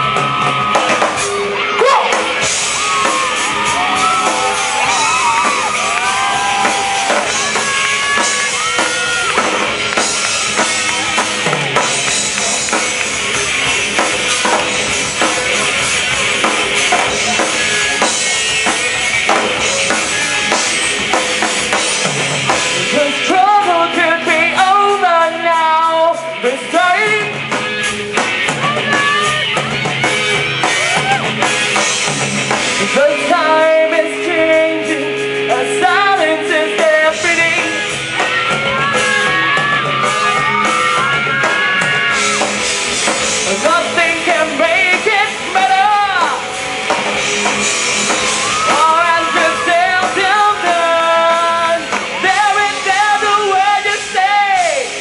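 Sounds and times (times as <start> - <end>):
rock band playing live: 0.0 - 55.0
person singing: 22.8 - 27.4, 32.8 - 41.6, 43.4 - 46.5, 48.5 - 55.0.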